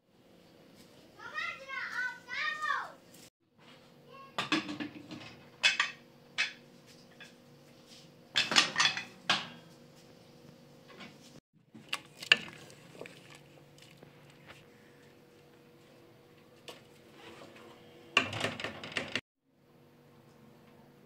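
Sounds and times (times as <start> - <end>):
metal pots and pans clattering: 4.4 - 7.4, 8.4 - 9.6.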